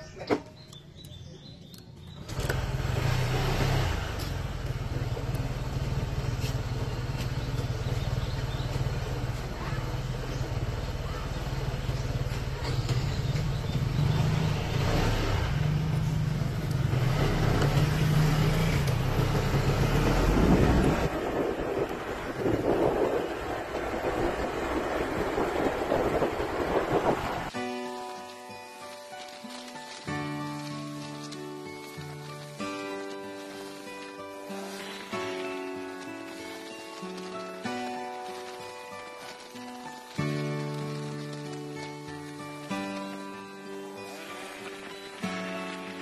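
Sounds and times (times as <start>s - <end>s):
motorcycle engine idling: 4.0s - 14.7s.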